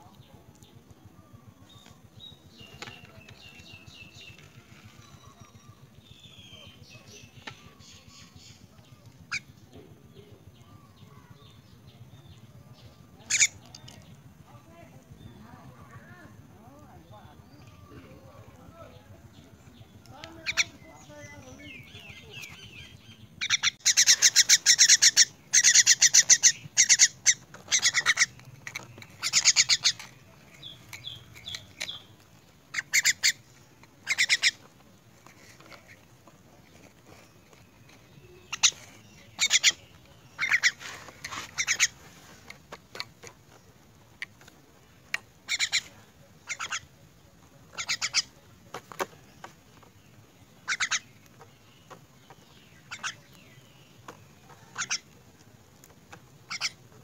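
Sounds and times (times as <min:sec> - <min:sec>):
bird squawking begging calls: 0:13.2 - 0:13.7, 0:20.2 - 0:28.4, 0:29.1 - 0:32.0, 0:32.6 - 0:34.7, 0:38.3 - 0:42.1, 0:45.4 - 0:47.0, 0:47.7 - 0:48.4, 0:50.6 - 0:51.2, 0:52.8 - 0:53.5, 0:54.6 - 0:55.1, 0:56.4 - 0:57.0.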